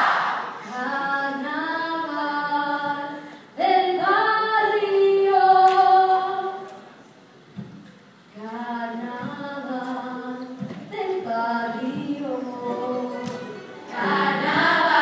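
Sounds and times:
choir singing sustained chords: 13.8 - 15.0.

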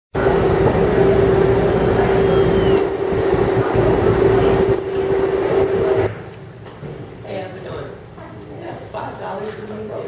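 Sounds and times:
low rumbling noise: 0.2 - 7.2
loud mechanical hum: 0.2 - 10.0.

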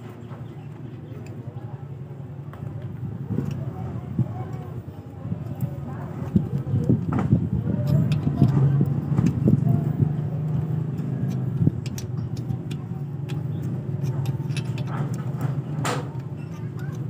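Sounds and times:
vehicle engine running: 6.2 - 17.0.

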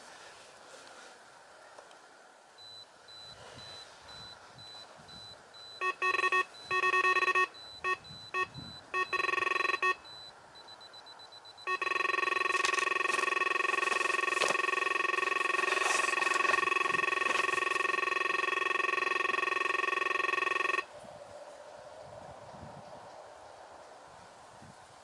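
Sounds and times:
bite alarm bleeping: 2.6 - 20.8
bite alarm steady tone: 2.6 - 20.9.

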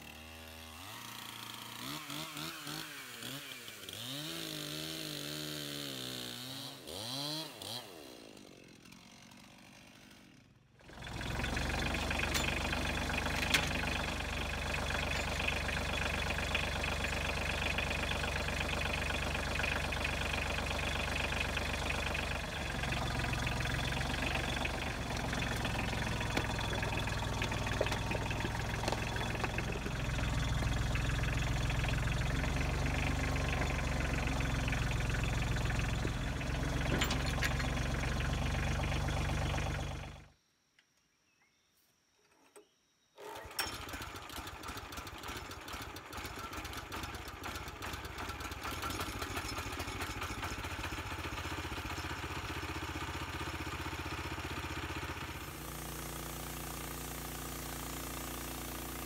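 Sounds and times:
chainsaw engine revving: 0.0 - 40.3, 43.2 - 59.0
tractor diesel engine running: 10.8 - 40.3, 43.3 - 59.0.

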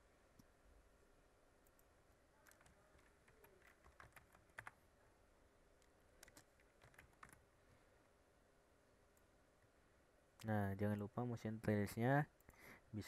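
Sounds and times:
faint keyboard typing: 1.6 - 4.9, 5.8 - 7.5.

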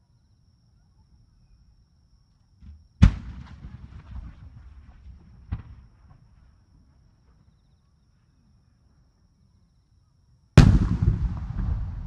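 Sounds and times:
sharp firework bang: 3.0 - 4.4, 10.6 - 12.0
soft firework thump: 5.5 - 6.2.

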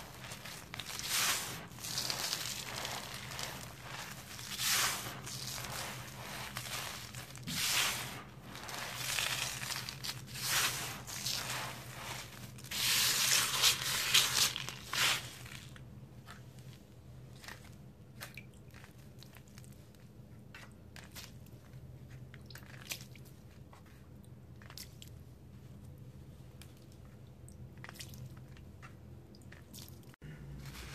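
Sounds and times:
gritty crunching of crushed cement: 0.0 - 15.8.

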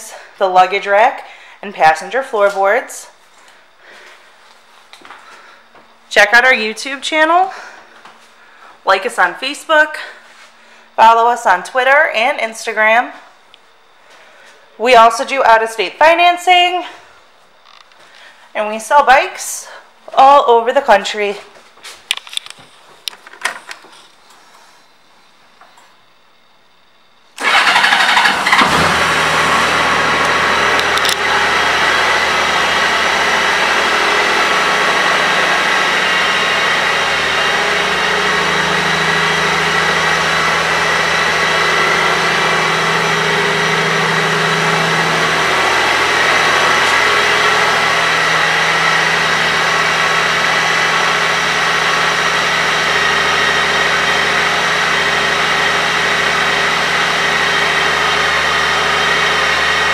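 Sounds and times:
motorcycle engine starting and idling: 27.4 - 59.9.

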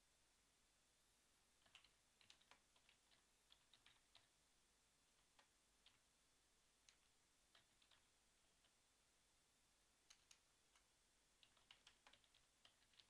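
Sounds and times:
typing on computer keyboard: 1.6 - 4.4, 5.2 - 6.0, 6.8 - 8.8, 10.0 - 13.0.

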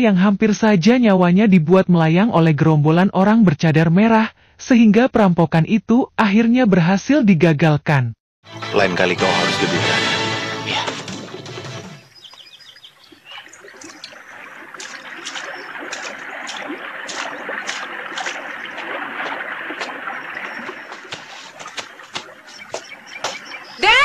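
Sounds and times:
birds chirping: 10.8 - 24.0
river water running over rocks: 12.2 - 24.0.

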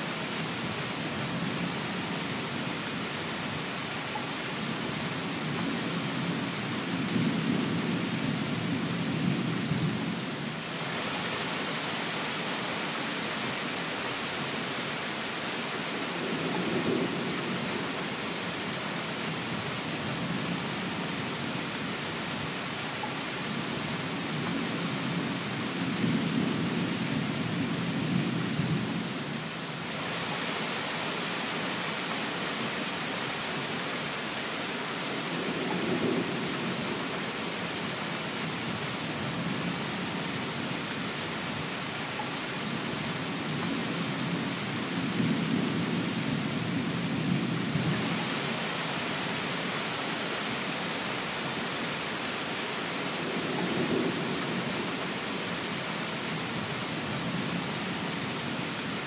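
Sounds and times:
rain hiss: 0.0 - 59.0
low thunder rumbles: 53.2 - 55.2.

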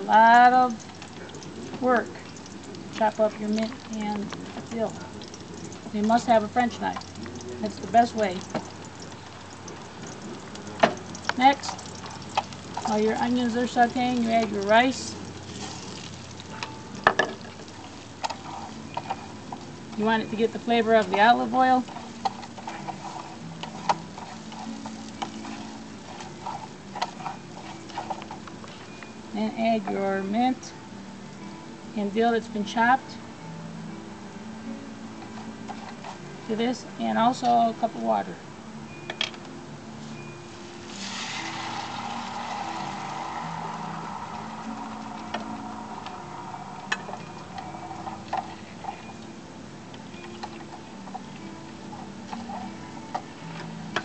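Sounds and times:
wooden spoon scraping a skillet: 0.8 - 29.0, 35.2 - 36.4, 40.0 - 49.3, 50.3 - 53.8.

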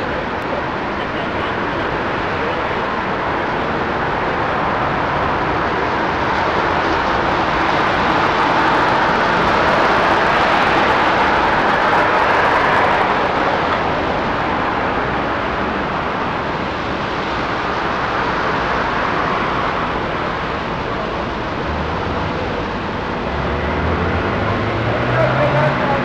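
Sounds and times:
cars rushing on road: 0.0 - 26.0.

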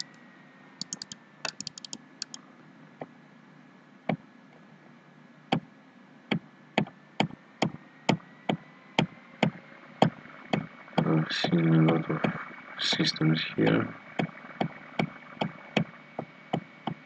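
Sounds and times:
computer mouse clicking: 0.8 - 2.4.

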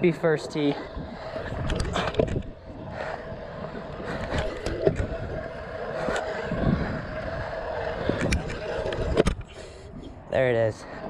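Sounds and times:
scooter wheels rolling on concrete: 0.0 - 11.0.

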